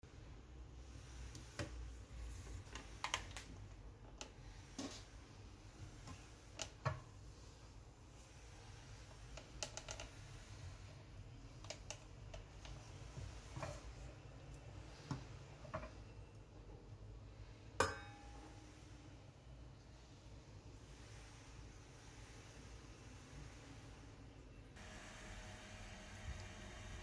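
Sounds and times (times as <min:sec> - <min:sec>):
metal lid clink: 0:17.8 - 0:18.4.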